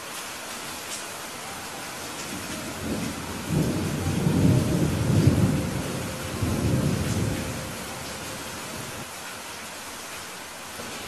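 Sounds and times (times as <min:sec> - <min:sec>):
steady rain: 0:00.0 - 0:11.0
thunder rolling: 0:02.3 - 0:09.0.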